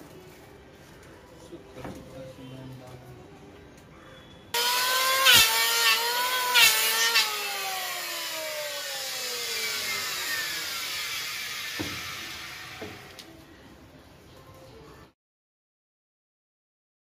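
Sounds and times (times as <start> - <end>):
electric hand planer cutting wood: 4.6 - 13.1.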